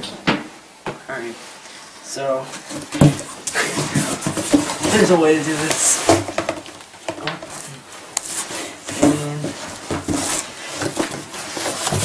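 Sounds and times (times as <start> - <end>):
cardboard box flaps scraping: 2.6 - 6.4, 8.2 - 12.0
small knocks: 2.7 - 7.6.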